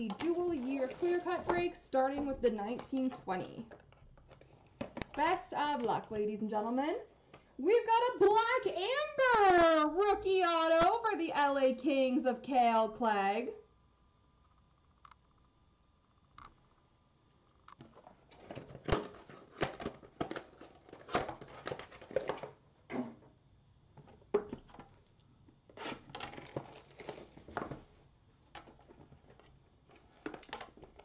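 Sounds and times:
packaging crinkling and tearing: 0.0s - 1.6s, 17.8s - 22.6s, 24.6s - 27.8s, 28.5s - 31.0s.

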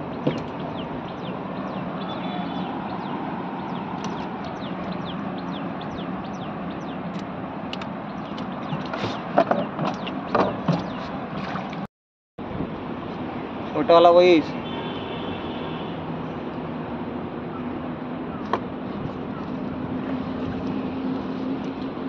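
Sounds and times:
small birds chirping: 0.0s - 7.3s, 8.0s - 11.2s.

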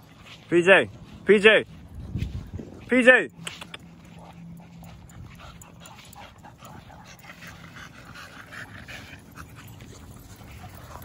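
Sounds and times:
dog panting: 3.3s - 11.0s.

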